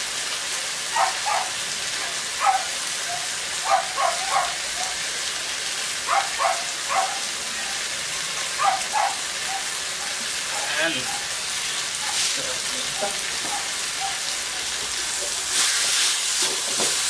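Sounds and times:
vegetables sizzling in a wok: 0.0 - 17.0
dog barking: 0.9 - 5.0, 6.0 - 7.8, 8.5 - 11.4, 12.0 - 12.2, 13.4 - 14.4.

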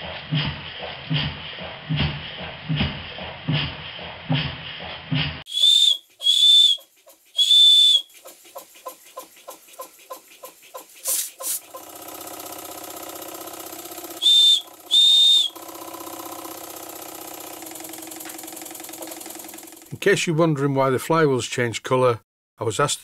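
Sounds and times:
steam engine chuffing: 0.0 - 20.1
steam whistle toots: 5.5 - 8.1, 14.1 - 15.9
steam hiss: 5.5 - 11.7, 14.2 - 15.6.

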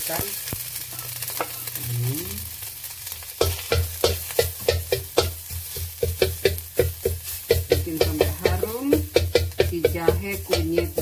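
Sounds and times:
food sizzling in hot oil: 0.0 - 11.0
steady knocking: 6.0 - 11.0.

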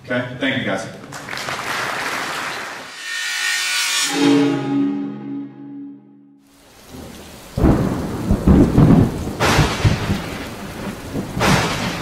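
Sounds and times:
rain hissing: 6.4 - 12.0
thunder rumbling: 6.6 - 12.0.

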